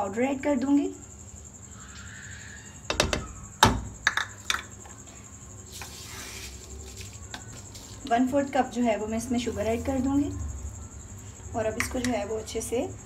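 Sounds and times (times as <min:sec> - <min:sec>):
plastic cup knocking on pan: 0:02.9 - 0:04.7
soft hiss: 0:05.6 - 0:08.3.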